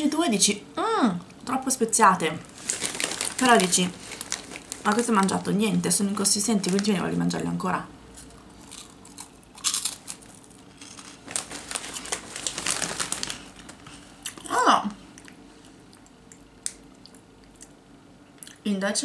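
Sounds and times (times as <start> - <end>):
plastic snack bag crinkling: 2.4 - 7.4, 8.2 - 14.4
chewing snack: 8.2 - 14.5, 15.1 - 17.8.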